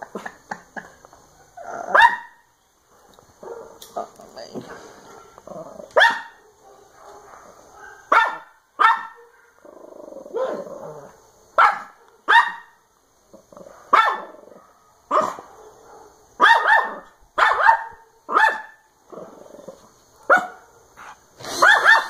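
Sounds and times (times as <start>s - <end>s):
dog growling: 1.6s - 2.0s, 4.7s - 6.0s, 9.6s - 11.2s, 19.1s - 19.9s
dog barking: 1.9s - 3.9s, 4.6s - 9.6s, 11.5s - 12.8s, 13.6s - 18.9s, 20.2s - 22.0s.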